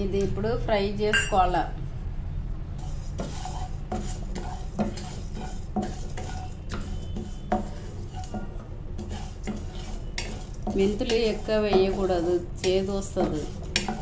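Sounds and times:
wooden spatula scraping a pan: 0:02.7 - 0:14.0
seeds frying in oil: 0:02.8 - 0:14.0.

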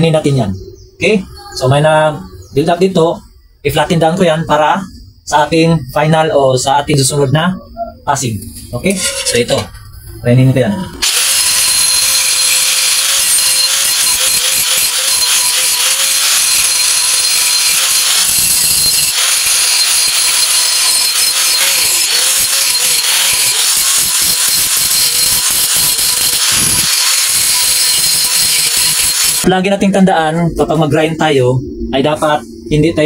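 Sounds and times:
angle grinder grinding metal: 0:08.6 - 0:09.8, 0:11.0 - 0:29.5.

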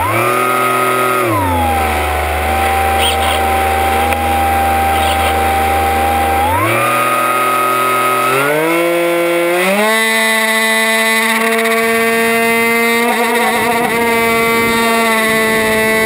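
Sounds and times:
drone propellers humming: 0:00.4 - 0:07.8.

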